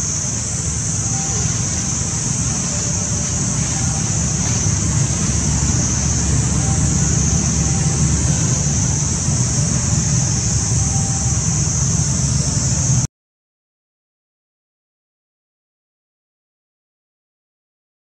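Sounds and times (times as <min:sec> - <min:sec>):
high-pitched drone: 0:00.0 - 0:13.1
low rumble: 0:00.0 - 0:13.1.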